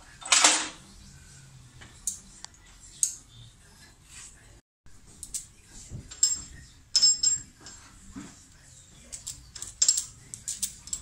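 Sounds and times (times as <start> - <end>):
tool clinking against steel: 6.1 - 7.8, 9.1 - 11.0.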